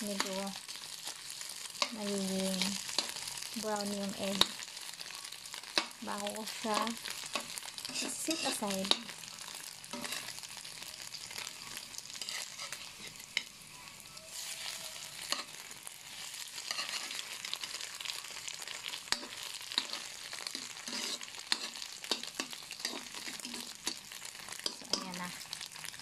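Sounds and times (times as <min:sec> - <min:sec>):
spatula scraping a wok: 0:00.0 - 0:10.6, 0:11.2 - 0:25.9
egg sizzling in oil: 0:00.0 - 0:26.0
spatula clicking on pan: 0:24.6 - 0:25.1.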